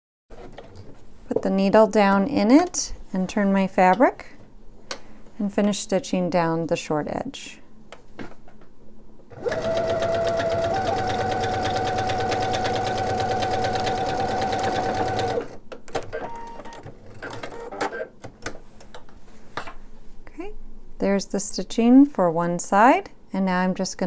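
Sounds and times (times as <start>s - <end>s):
sewing machine running: 9.3s - 15.6s.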